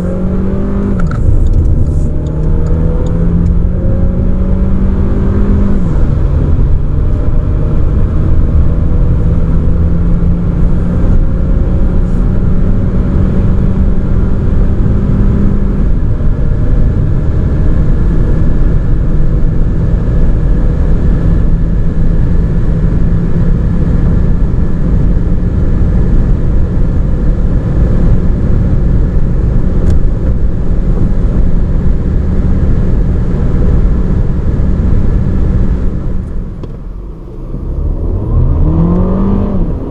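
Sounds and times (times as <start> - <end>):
car engine at full throttle: 0.0 - 39.9.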